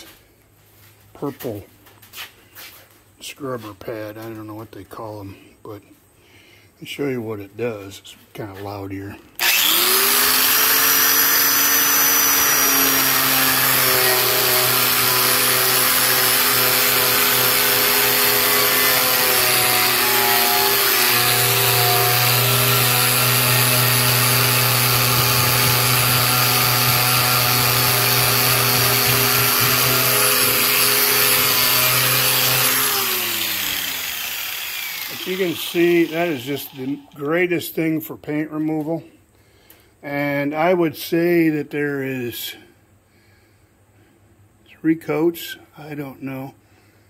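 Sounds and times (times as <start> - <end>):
angle grinder stripping paint: 9.4 - 37.3
motor winding down: 9.4 - 37.3.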